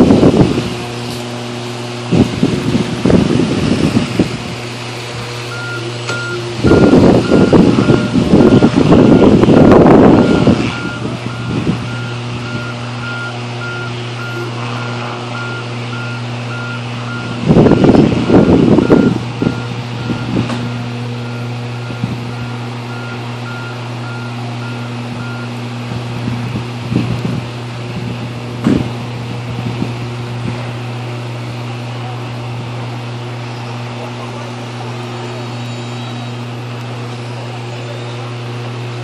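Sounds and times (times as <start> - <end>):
rough rumbling bursts: 0.0 - 24.1
truck reversing beeper: 0.9 - 26.5, 33.2 - 39.0.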